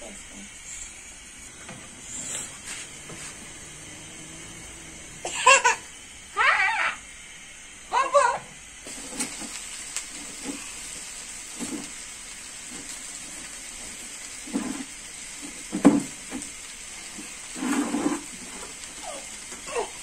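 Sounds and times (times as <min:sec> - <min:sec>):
batter sizzling in hot oil: 0:00.0 - 0:20.0.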